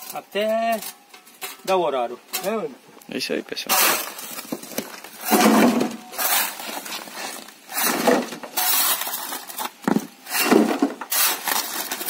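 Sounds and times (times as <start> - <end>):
rubble clattering into wheelbarrow: 3.7 - 12.0
shovel scraping into rubble: 3.7 - 12.0.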